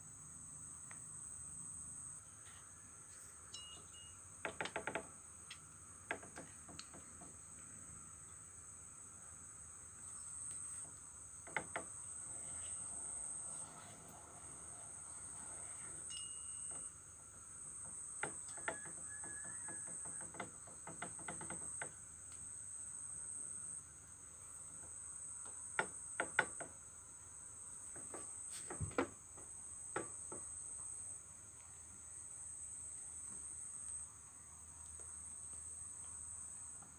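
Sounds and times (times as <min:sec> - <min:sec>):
crickets trilling: 0:00.0 - 0:36.9.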